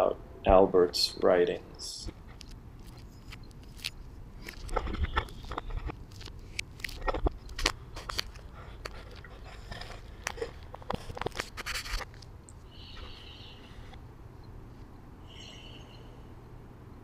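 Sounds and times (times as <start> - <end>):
camera handling scrapes and knocks: 2.2 - 12.2
high bird chirp: 15.3 - 16.3.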